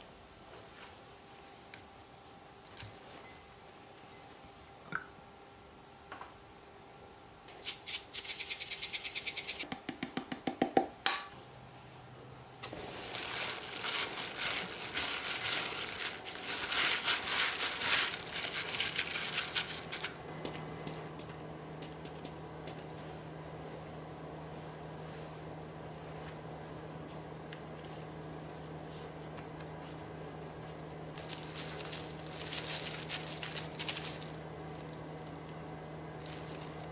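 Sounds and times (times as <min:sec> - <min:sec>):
plastic glove crinkling: 0:12.6 - 0:20.2, 0:31.1 - 0:36.9.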